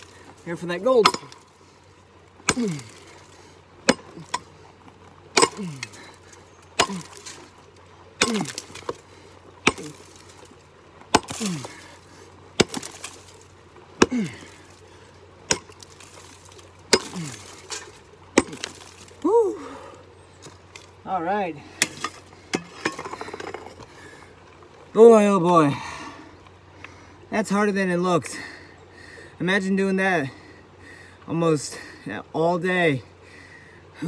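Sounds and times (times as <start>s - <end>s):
pickax striking rock: 1.0s - 1.4s, 2.4s - 3.1s, 3.8s - 4.5s, 5.3s - 6.0s, 6.8s - 7.4s, 8.2s - 9.0s, 9.6s - 10.2s, 11.1s - 11.8s, 12.6s - 13.4s, 14.0s - 14.5s, 15.4s - 19.1s
man grunting with effort: 2.5s - 3.1s, 5.4s - 6.1s, 11.2s - 11.9s, 14.0s - 14.6s, 17.0s - 17.5s.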